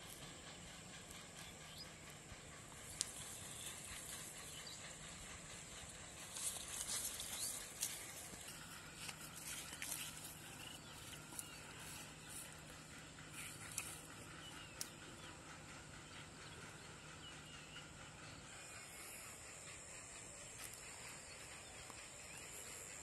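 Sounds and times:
sharp ticks: 0:02.7 - 0:04.8
footsteps in grass: 0:06.6 - 0:12.1.

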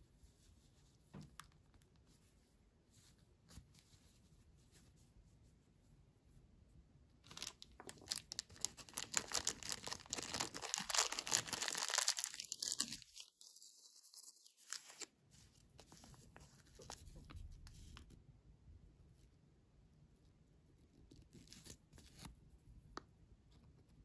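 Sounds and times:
plastic bag crinkling and tearing: 0:07.3 - 0:15.1
light paper rustles: 0:07.3 - 0:18.1.

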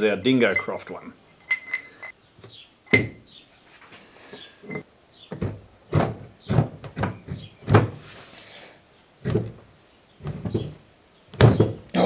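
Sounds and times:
dull knocks of metal on wooden bench: 0:02.9 - 0:03.3, 0:11.4 - 0:11.9.

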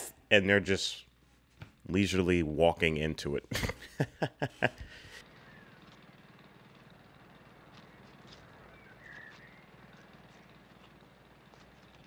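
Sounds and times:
person laughing: 0:03.5 - 0:05.2
faint bird chirps: 0:07.8 - 0:10.6.

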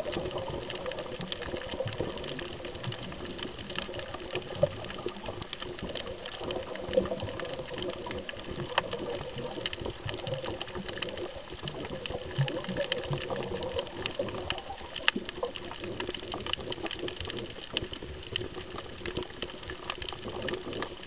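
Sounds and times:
crackle of sharp clicks underwater: 0:00.0 - 0:21.0.

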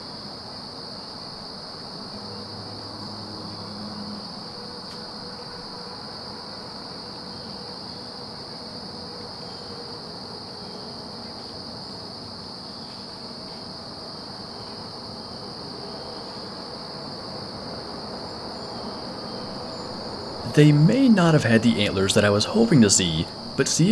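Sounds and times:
crickets chirping: 0:00.0 - 0:23.9
low background hiss: 0:19.3 - 0:23.9.

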